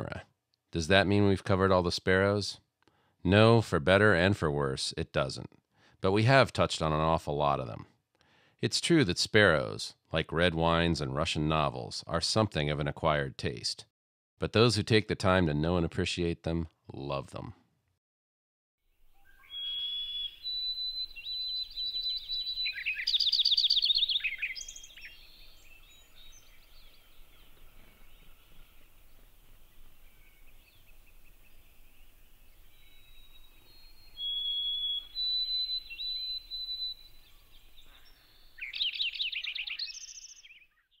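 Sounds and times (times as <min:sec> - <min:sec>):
faint bird chirps: 0:18.9 - 0:41.0
sparrow singing: 0:19.0 - 0:41.0.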